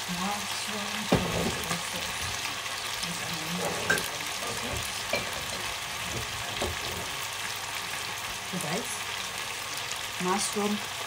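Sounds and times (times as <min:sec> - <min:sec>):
chicken feet sizzling in a wok: 0:00.0 - 0:11.0.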